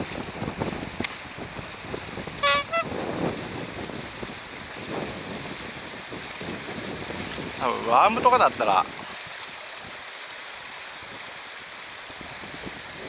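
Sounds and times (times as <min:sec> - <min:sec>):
flowing water: 0:00.0 - 0:13.0
wind: 0:00.0 - 0:13.0
double toot: 0:02.4 - 0:02.9.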